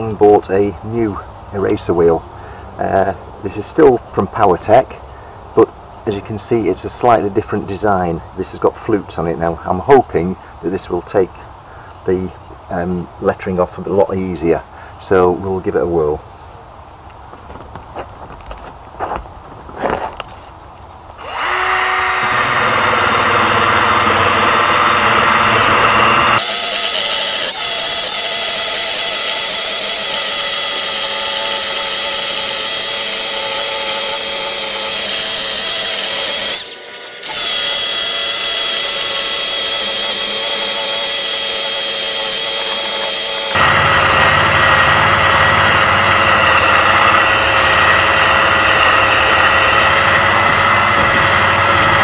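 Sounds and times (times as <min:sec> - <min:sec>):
cordless drill with eraser wheel: 0:21.2 - 0:52.0.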